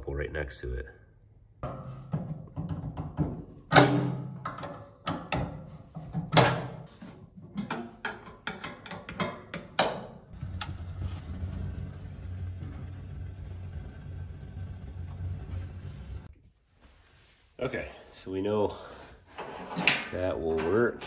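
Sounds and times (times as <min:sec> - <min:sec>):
gas valve clicks and knocks: 0:01.6 - 0:05.7, 0:07.6 - 0:10.2
gas heater low rumble: 0:10.3 - 0:16.3.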